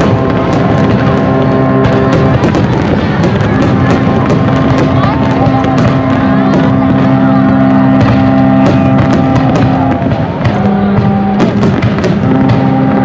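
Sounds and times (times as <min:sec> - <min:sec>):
fireworks bangs and crackles: 0:00.0 - 0:13.0
music with long held notes: 0:00.0 - 0:13.0.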